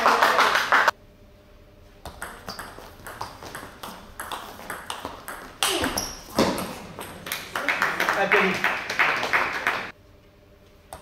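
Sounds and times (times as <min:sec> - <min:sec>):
table tennis ball clicking: 0:02.1 - 0:07.4.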